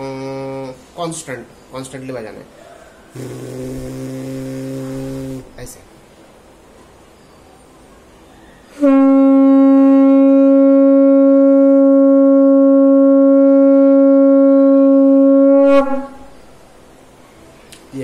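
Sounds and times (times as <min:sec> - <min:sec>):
conch shell blown: 0:00.0 - 0:00.9, 0:03.1 - 0:05.6, 0:08.7 - 0:16.5.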